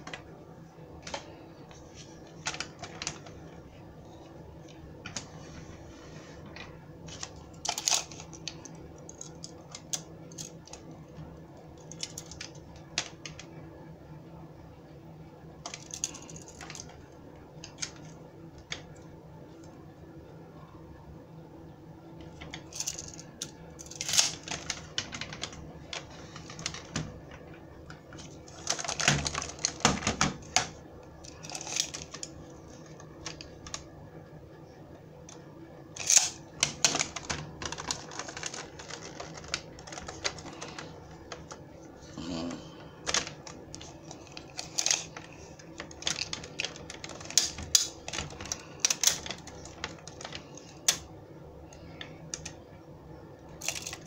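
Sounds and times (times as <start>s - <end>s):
plastic toy being handled: 5.0s - 10.9s, 11.8s - 13.6s, 22.2s - 33.9s, 35.9s - 41.7s, 43.0s - 51.1s.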